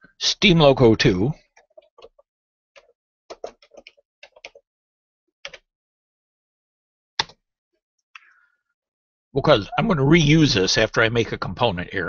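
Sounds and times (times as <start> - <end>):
keyboard keys clicking: 2.8 - 4.6.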